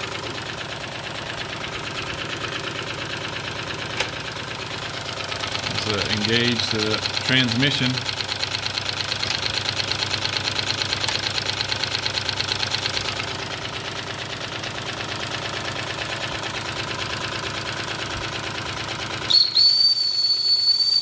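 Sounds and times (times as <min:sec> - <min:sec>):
model steam engine running: 0:00.0 - 0:21.0
steam whistle: 0:19.3 - 0:21.0.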